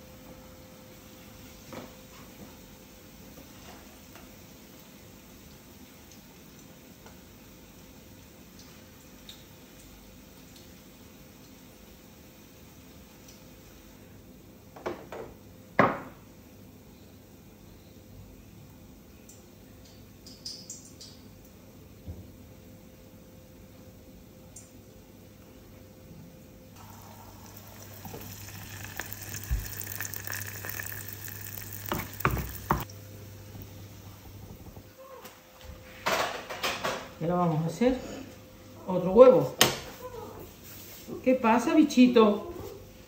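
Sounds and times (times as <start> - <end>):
faint room hiss: 0.0 - 43.0
dish set down on counter: 14.8 - 16.2, 31.9 - 32.9
food sizzling in hot oil: 26.8 - 32.9.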